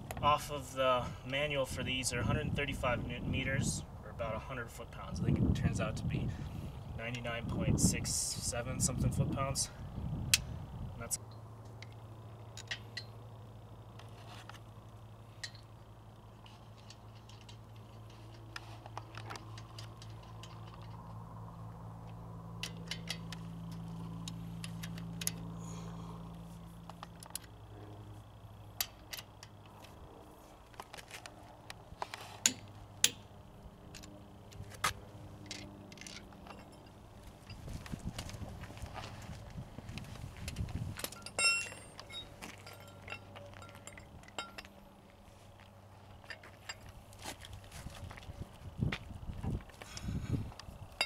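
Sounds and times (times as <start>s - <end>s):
low hum: 0.0s - 51.0s
metal tools clicking and clinking: 11.3s - 13.2s, 15.4s - 15.7s, 16.4s - 21.2s, 22.6s - 25.5s, 35.4s - 37.8s, 40.4s - 44.8s.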